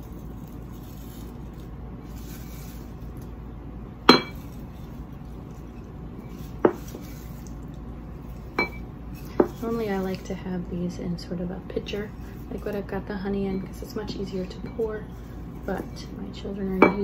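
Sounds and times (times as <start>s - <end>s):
dried petals scooped: 0.0s - 16.8s
glass jar clinking against bowl: 4.1s - 4.4s, 8.5s - 9.5s.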